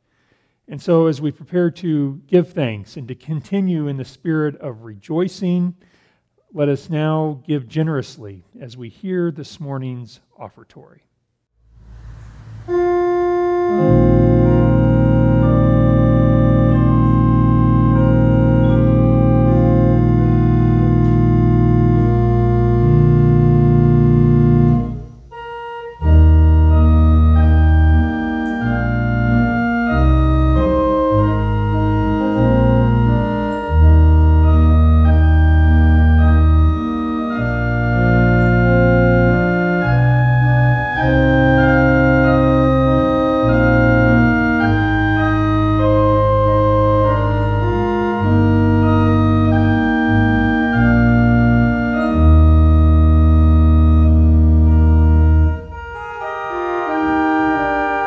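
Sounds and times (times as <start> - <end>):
organ playing chords: 11.7 - 58.0.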